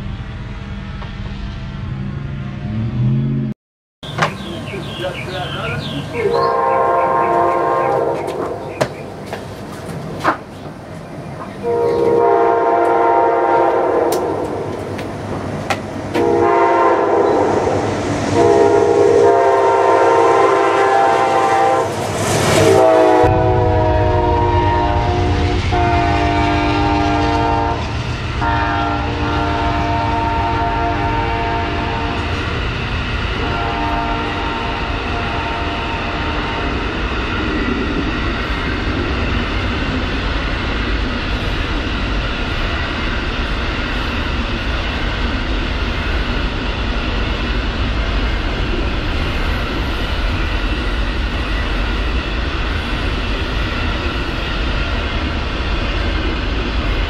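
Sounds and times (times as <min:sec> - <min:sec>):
train rumbling past: 0:00.0 - 0:57.0
train air horn chord: 0:06.2 - 0:08.6, 0:11.6 - 0:14.4, 0:16.2 - 0:22.0, 0:22.6 - 0:32.4, 0:33.4 - 0:36.6.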